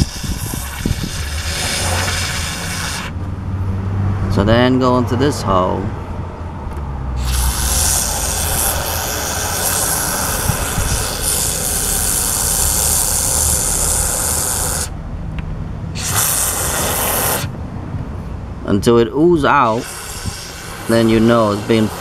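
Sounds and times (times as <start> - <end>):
spray foam can hissing: 0.0 - 3.2, 7.2 - 14.9, 16.0 - 17.5, 19.7 - 22.0.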